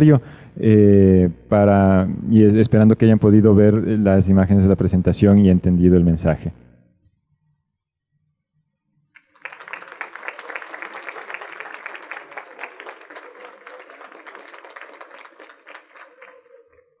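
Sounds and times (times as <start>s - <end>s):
audience applauding: 9.2s - 17.0s.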